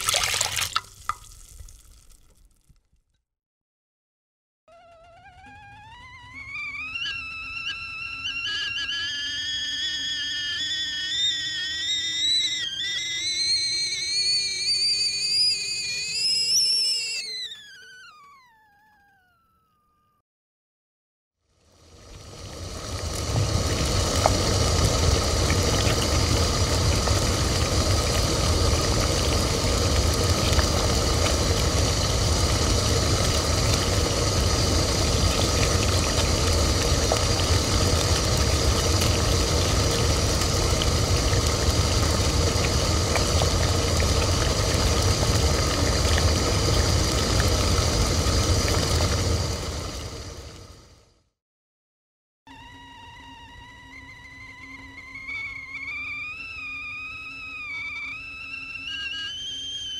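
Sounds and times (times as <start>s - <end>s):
kettle heating water rumble and hiss: 8.4s - 17.6s, 21.6s - 50.9s
faint high tones: 12.4s - 20.2s.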